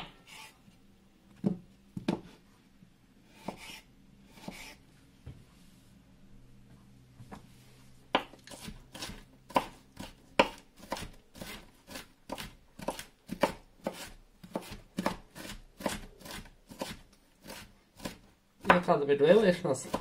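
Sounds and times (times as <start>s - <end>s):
knife chopping on wooden board: 3.3s - 4.8s, 8.1s - 18.9s.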